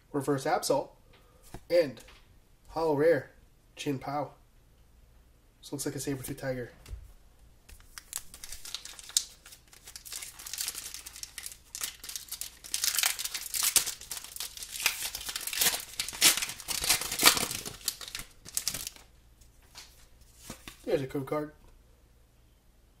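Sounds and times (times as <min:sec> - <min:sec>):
foil wrapper crinkling and tearing: 0:07.7 - 0:19.1.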